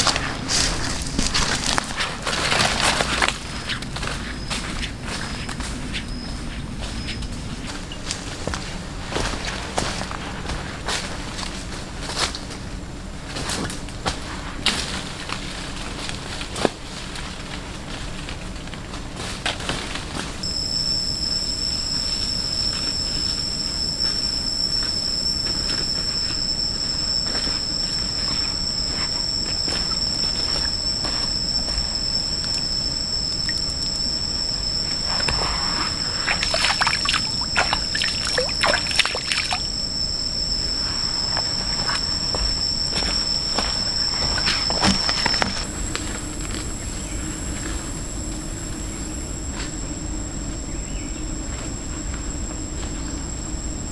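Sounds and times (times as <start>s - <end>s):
footsteps on dry leaves: 0.0s - 6.0s
insects droning: 0.0s - 53.9s.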